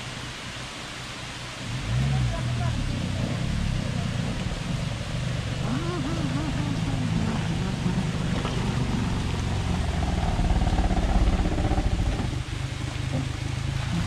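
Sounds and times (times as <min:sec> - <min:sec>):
van engine pulling under load: 0:01.8 - 0:14.0.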